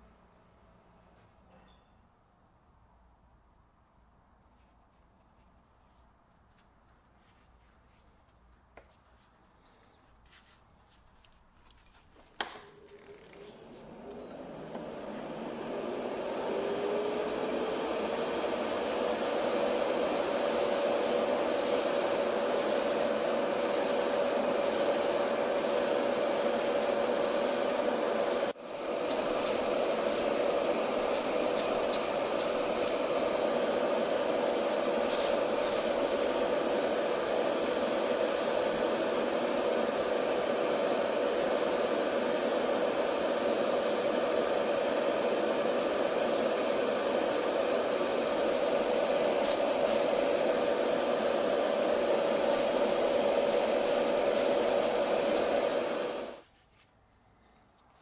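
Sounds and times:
exhaust fan whooshing and humming: 0:04.5 - 0:56.6
fan switch click: 0:12.4 - 0:12.8
bursts of high hiss: 0:20.3 - 0:40.0, 0:47.9 - 0:56.4.

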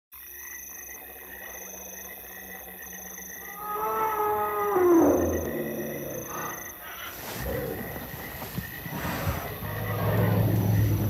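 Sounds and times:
insects trilling: 0:00.2 - 0:11.0
elephant call: 0:03.5 - 0:11.0.

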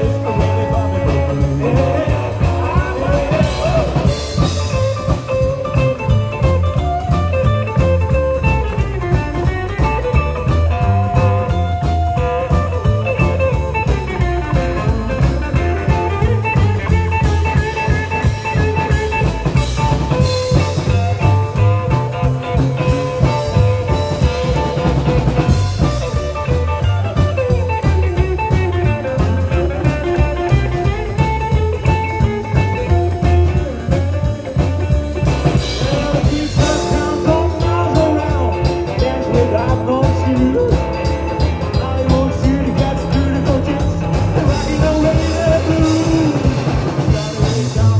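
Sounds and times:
drum kit steady beat: 0:00.0 - 0:47.9
electric guitar: 0:00.0 - 0:47.9
upright double bass: 0:00.0 - 0:47.9.

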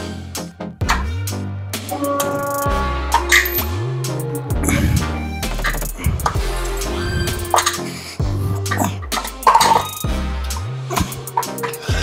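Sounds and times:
sliding deep bass: 0:00.7 - 0:12.0
sustained notes: 0:01.8 - 0:09.6
drum hits: 0:01.9 - 0:09.7.

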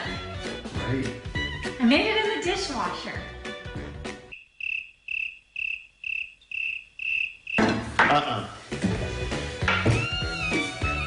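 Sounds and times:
background music: 0:00.0 - 0:04.3, 0:07.8 - 0:11.0
cricket chirping: 0:04.3 - 0:07.6.

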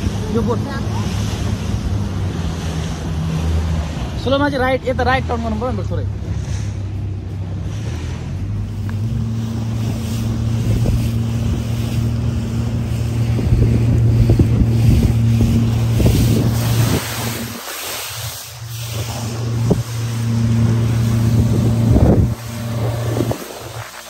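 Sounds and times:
engine droning: 0:00.0 - 0:24.0
wind buffeting microphone: 0:06.1 - 0:24.0.

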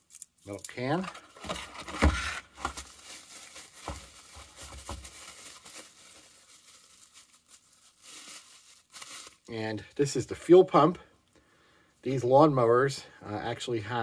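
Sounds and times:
bubble wrap crinkling: 0:00.0 - 0:09.8.

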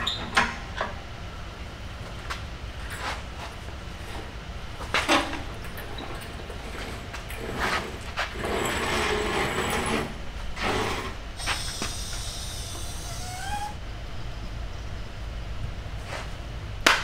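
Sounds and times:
engine crane rattling on casters: 0:00.0 - 0:17.0
short rising squeak: 0:08.4 - 0:13.8.

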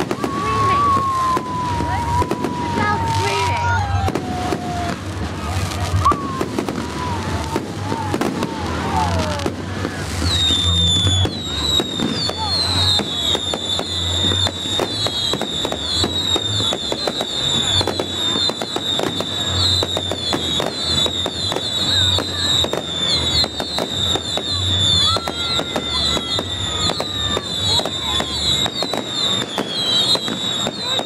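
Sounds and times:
fireworks cracks and bangs: 0:00.0 - 0:31.0
high wavering whistle: 0:10.1 - 0:31.0.

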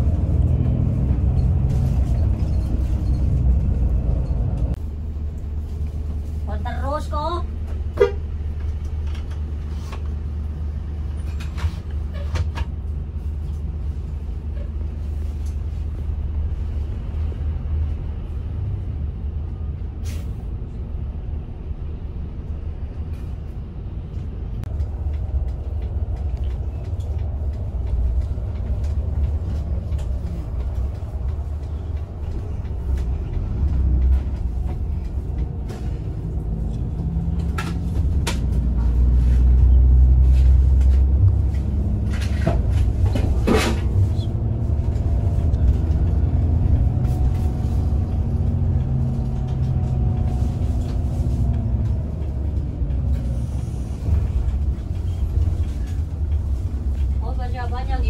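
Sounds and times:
bus engine and road noise: 0:00.0 - 0:58.0.

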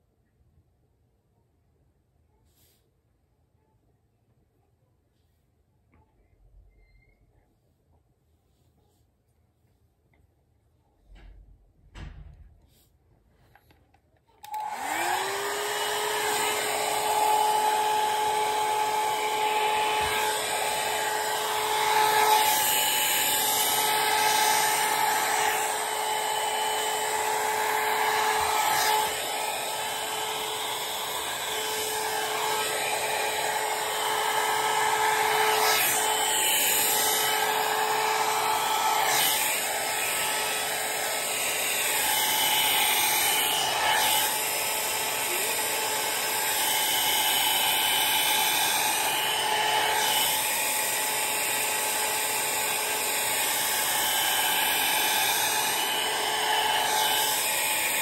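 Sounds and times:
hair dryer running: 0:14.4 - 0:58.0.

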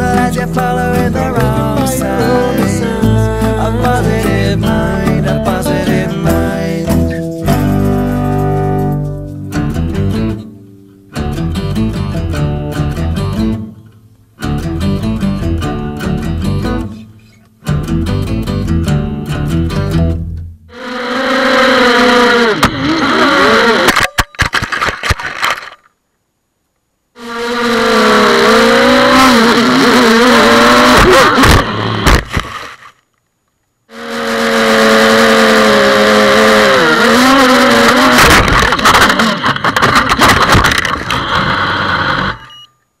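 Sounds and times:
quadcopter motors whining: 0:20.7 - 0:23.9, 0:27.2 - 0:32.0, 0:33.9 - 0:38.8.

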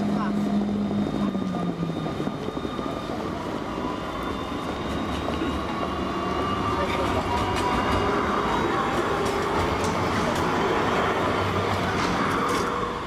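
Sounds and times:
tram wheels rumbling on rails: 0:00.0 - 0:13.0.

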